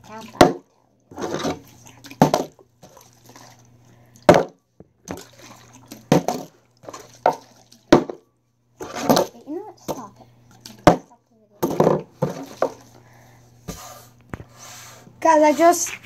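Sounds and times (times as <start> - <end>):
water sloshing in bottles: 0.0 - 13.4
bottles knocking on wooden table: 8.0 - 8.2, 11.6 - 12.8.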